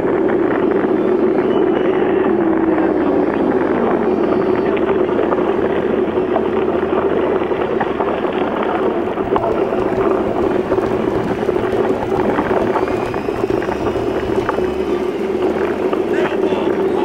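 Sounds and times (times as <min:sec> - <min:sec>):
wind on microphone: 0:00.0 - 0:17.0
bike tyre noise: 0:03.7 - 0:17.0
bike rattles and knocks: 0:09.2 - 0:17.0.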